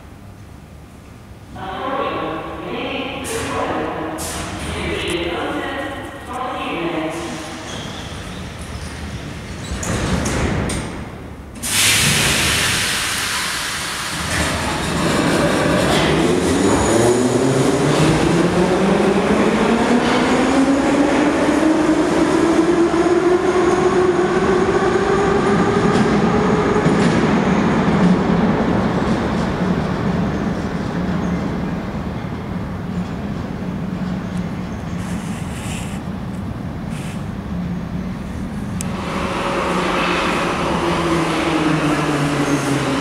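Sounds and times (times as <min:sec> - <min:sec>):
loud air hiss: 0:11.6 - 0:14.3, 0:35.0 - 0:36.1.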